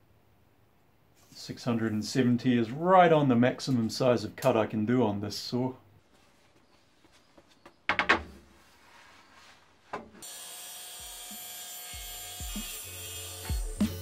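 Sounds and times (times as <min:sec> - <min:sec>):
wooden board knocking: 0:07.6 - 0:08.5.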